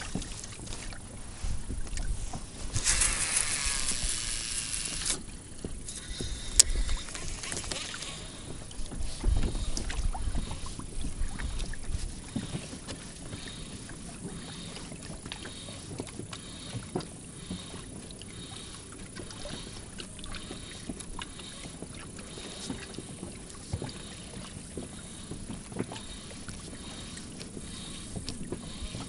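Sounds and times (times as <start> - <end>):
wind buffeting microphone: 0.0 - 14.4
waves lapping against boat hull: 0.0 - 29.0.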